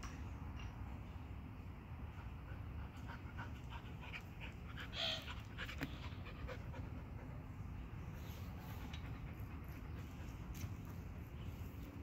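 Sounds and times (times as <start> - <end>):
small dogs panting: 2.1 - 7.5.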